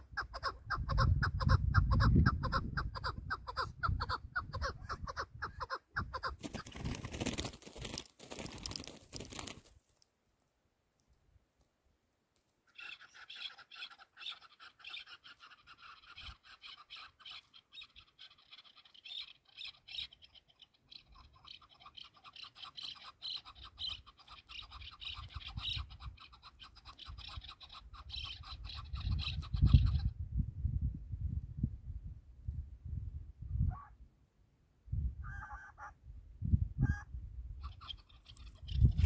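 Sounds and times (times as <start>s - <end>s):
partridge chattering call: 12.7s - 30.1s, 37.6s - 39.0s.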